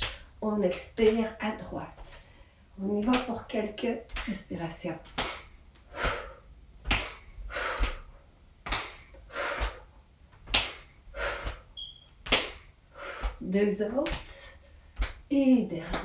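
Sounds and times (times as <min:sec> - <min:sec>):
woman breathing hard: 0:05.2 - 0:10.0, 0:10.6 - 0:11.8, 0:12.6 - 0:13.4.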